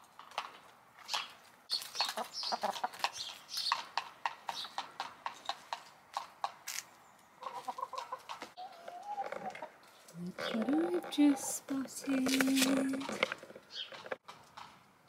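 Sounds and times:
hens pecking taps: 0.0 - 6.8, 7.4 - 14.8
hens clucking: 1.8 - 6.6, 7.4 - 14.6.

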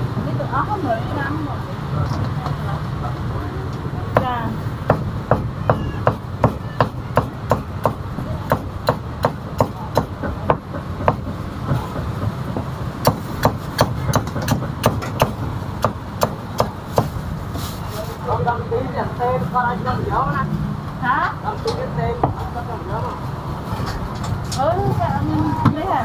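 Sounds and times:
cleaver chopping meat on wood: 4.9 - 11.8, 12.5 - 17.1.

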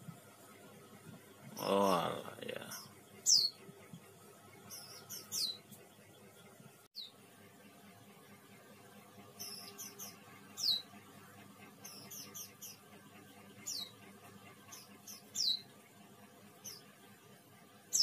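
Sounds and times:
small bird chirping: 2.5 - 3.7, 4.5 - 6.1, 7.0 - 7.2, 9.3 - 11.0, 11.6 - 15.9, 16.5 - 17.0.

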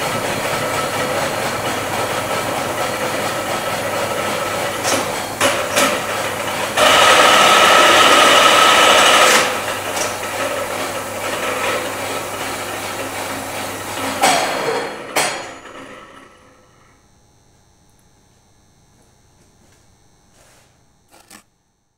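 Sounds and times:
milling machine running: 0.0 - 17.1
machine whine: 0.0 - 21.9.

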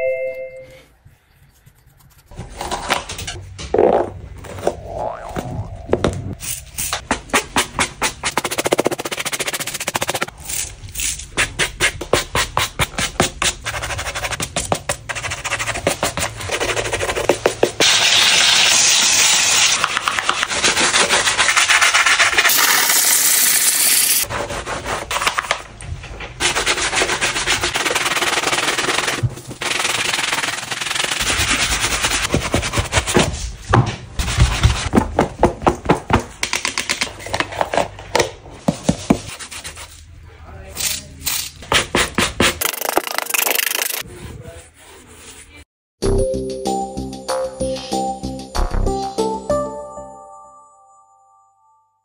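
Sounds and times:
brush scrubbing a shoe: 1.3 - 2.4, 19.4 - 23.0, 26.4 - 33.2.

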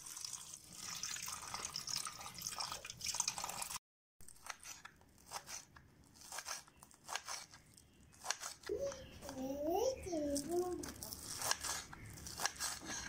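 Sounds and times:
knife chopping green onion: 10.9 - 13.0.

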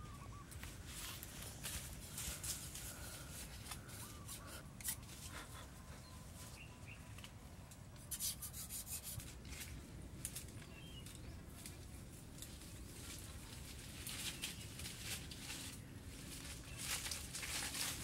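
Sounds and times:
faint bird chirps: 0.0 - 0.6
leafy branches rustling: 0.0 - 18.0.

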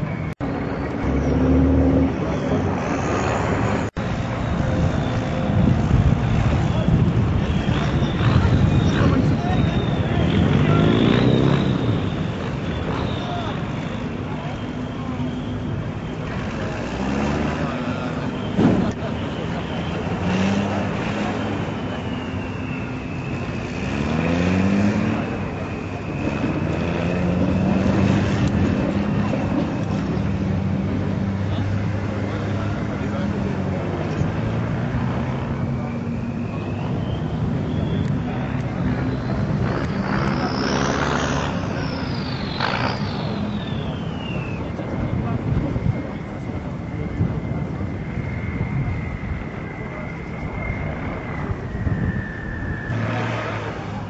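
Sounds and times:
truck engine running under load: 0.0 - 54.0
thin high whine: 35.0 - 54.0.

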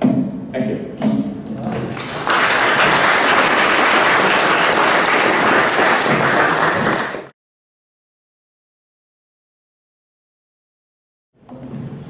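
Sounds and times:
audience applauding: 1.8 - 7.4.

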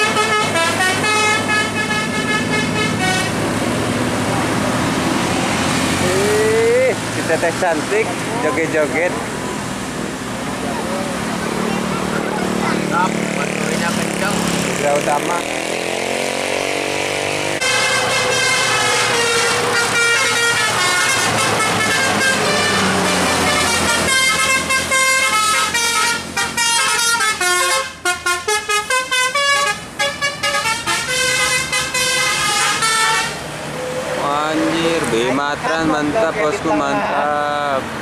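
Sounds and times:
multi-note air horn playing a tune: 0.0 - 3.4, 17.6 - 33.4
bus engine: 0.0 - 38.0.

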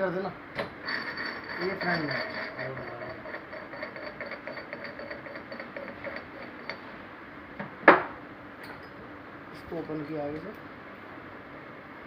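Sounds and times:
metal nut ticking as turned: 1.5 - 6.8.

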